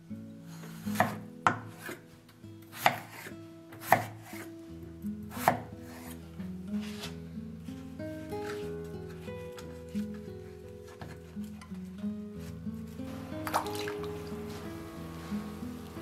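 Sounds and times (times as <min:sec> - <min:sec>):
knife slicing potatoes: 0:00.5 - 0:02.1, 0:02.7 - 0:04.5, 0:05.3 - 0:06.2, 0:06.8 - 0:07.2.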